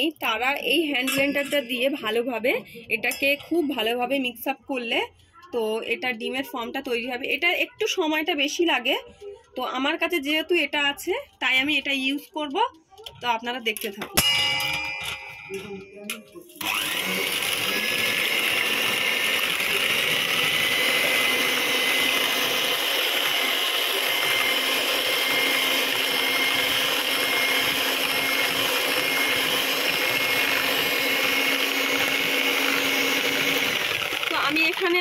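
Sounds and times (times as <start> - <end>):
electric hand mixer whipping: 16.5 - 35.0.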